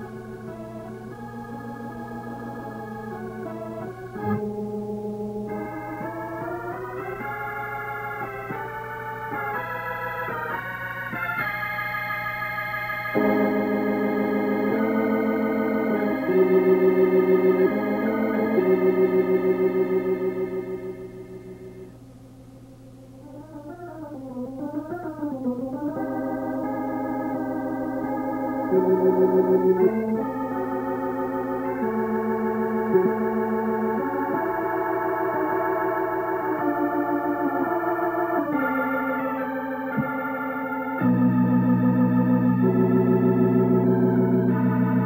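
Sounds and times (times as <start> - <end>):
organ playing slow held chords: 0.0 - 45.0.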